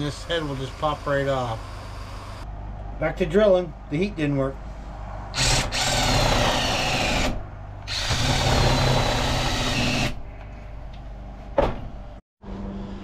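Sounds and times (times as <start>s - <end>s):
cordless drill boring into wood: 5.4s - 10.2s.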